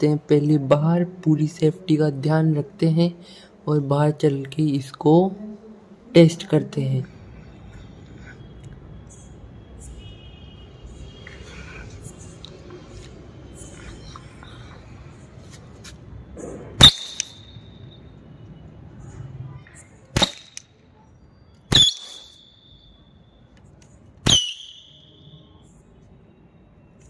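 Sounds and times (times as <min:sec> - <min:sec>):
cap gun bangs: 0:16.8 - 0:17.4, 0:20.2 - 0:20.6
high ringing tone: 0:16.9 - 0:18.2.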